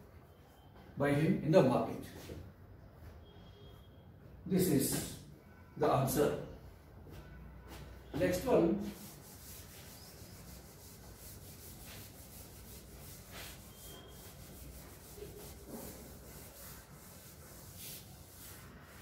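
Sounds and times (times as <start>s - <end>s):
duster rubbing on chalkboard: 8.1s - 19.0s.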